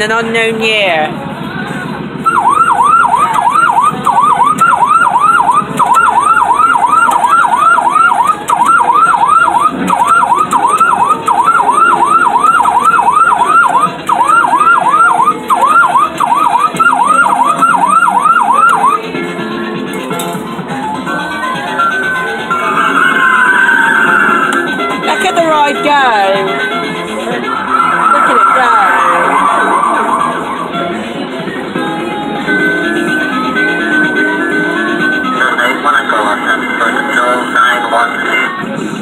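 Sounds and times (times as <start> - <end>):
electronic toy siren yelping: 2.3 - 19.0, 22.5 - 24.7, 27.4 - 30.7.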